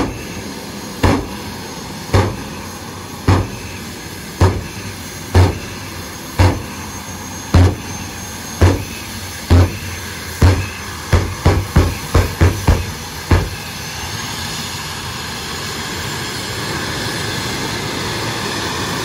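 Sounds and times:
jet turbine running: 0.0 - 19.0
loud afterburner pops: 1.0 - 1.4, 2.1 - 2.6, 3.3 - 3.8, 4.4 - 4.8, 5.4 - 5.7, 6.4 - 6.7, 7.6 - 7.9, 8.6 - 8.9, 9.5 - 13.6.

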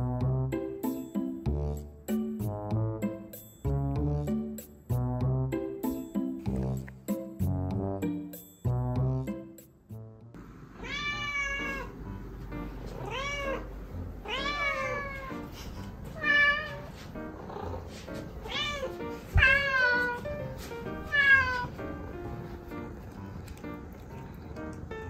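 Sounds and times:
cats meowing: 10.8 - 12.0, 12.9 - 20.4, 21.0 - 21.8.

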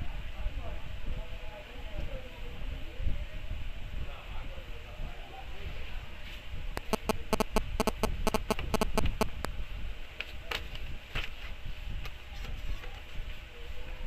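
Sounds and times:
phone keypad button clicks: 6.8 - 9.3.

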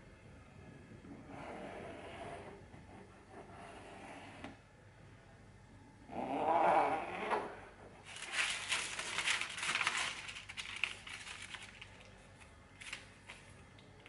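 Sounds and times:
plastic sheets crinkling: 8.0 - 14.0.

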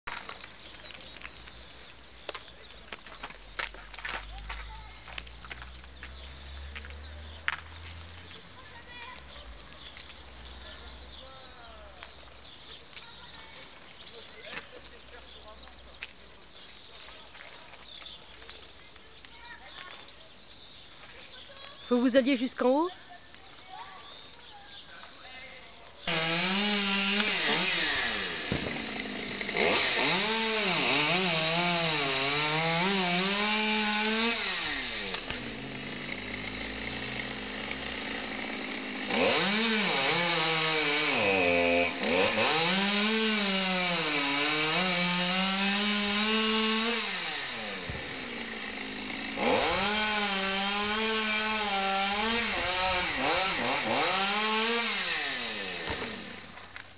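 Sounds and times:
chainsaw cutting wood: 26.1 - 56.9.

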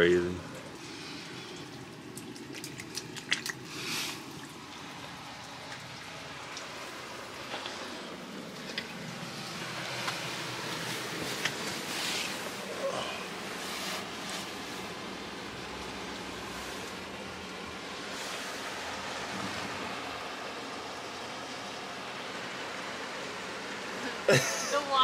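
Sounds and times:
water trickling over rock: 0.0 - 23.0
clothing rustling: 9.9 - 12.8, 13.4 - 15.1.

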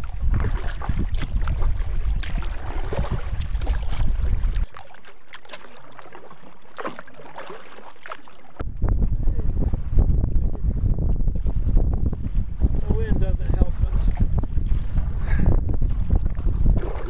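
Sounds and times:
wind rumble on microphone: 0.0 - 4.8, 8.6 - 17.0
paddle splashing in water: 0.0 - 8.6, 13.9 - 15.2, 15.8 - 17.0.

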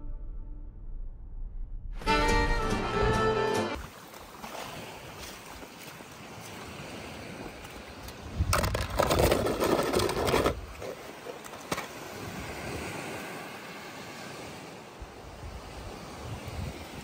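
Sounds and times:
faint wind: 3.8 - 17.0
toy car clattering in plastic tub: 8.5 - 10.6.

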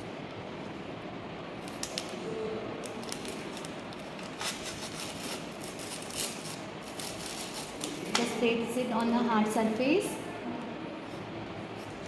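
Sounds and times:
packaging crinkling: 2.8 - 8.1.

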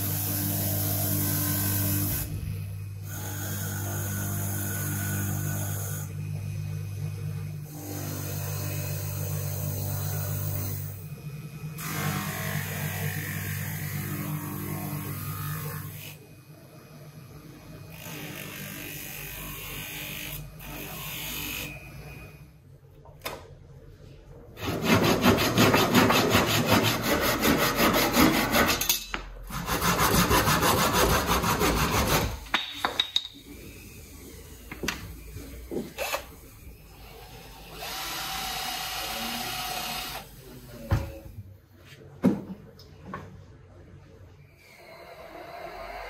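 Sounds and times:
hand saw cutting wooden rod: 24.6 - 28.9, 29.5 - 32.5
cordless drill boring into wood: 37.3 - 40.4.

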